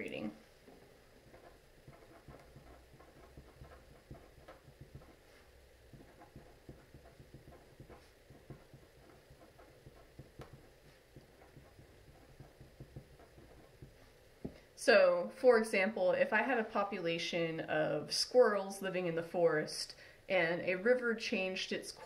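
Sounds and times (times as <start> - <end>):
marker squeaking on paper: 1.2 - 14.1.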